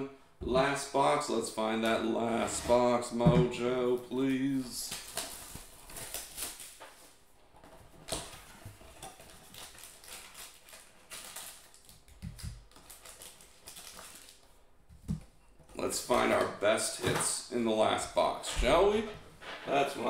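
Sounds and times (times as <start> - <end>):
foil packs rustling: 4.6 - 7.2, 7.8 - 14.5.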